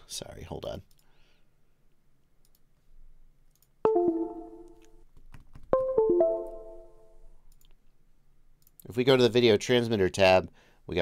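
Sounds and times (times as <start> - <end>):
computer device chimes: 3.9 - 4.8, 5.8 - 7.2.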